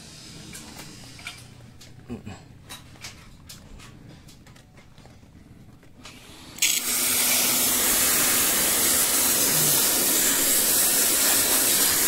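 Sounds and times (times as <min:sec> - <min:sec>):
water spray jet hissing: 0:06.6 - 0:12.0.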